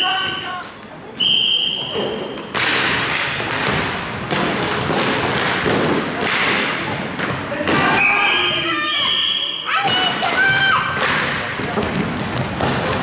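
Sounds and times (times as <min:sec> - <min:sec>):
referee's whistle blast: 0:01.2 - 0:02.3, 0:07.9 - 0:09.7
stick and puck knocks: 0:02.5 - 0:08.0, 0:09.9 - 0:13.0
skate wheels rolling on floor: 0:11.5 - 0:13.0.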